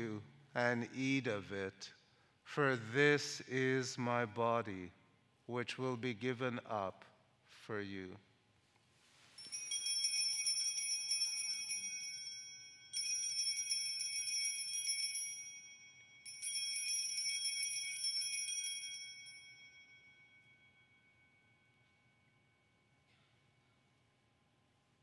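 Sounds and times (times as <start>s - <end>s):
altar bells jingling: 9.2s - 23.0s.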